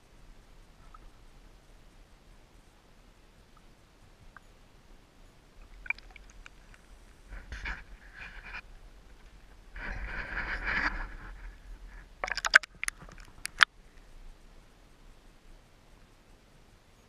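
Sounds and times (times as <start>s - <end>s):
faint hiss: 0.0s - 17.0s
sharp crackles and pops: 5.5s - 14.6s
water splashing over microphone: 5.6s - 8.6s, 9.4s - 13.7s.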